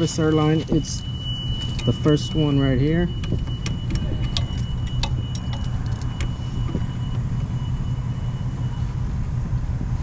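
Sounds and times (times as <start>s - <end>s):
steady low rumble: 0.0s - 10.0s
metallic clicks of air line coupling: 3.2s - 6.3s.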